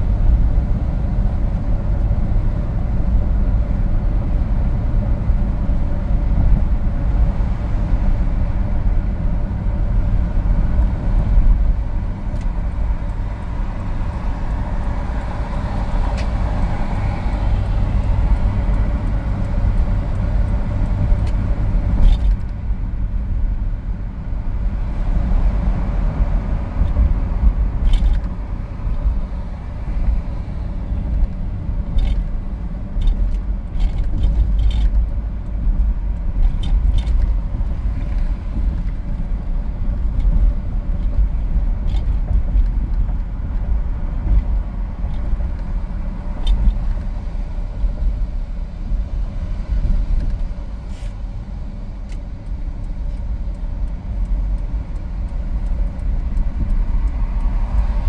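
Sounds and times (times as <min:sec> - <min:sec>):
car road and engine rumble: 0:00.0 - 0:58.0
light clicks and rattles: 0:31.0 - 0:32.4, 0:33.0 - 0:45.7.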